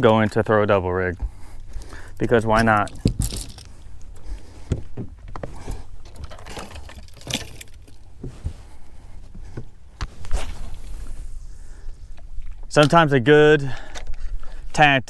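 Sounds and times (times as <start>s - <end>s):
fishing tackle clicks and knocks: 1.6s - 8.1s, 13.8s - 14.5s
light metallic rattles: 2.2s - 4.1s.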